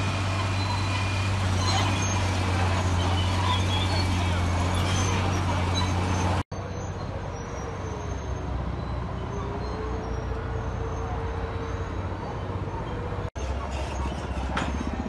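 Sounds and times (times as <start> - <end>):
engine drone: 0.0 - 9.0.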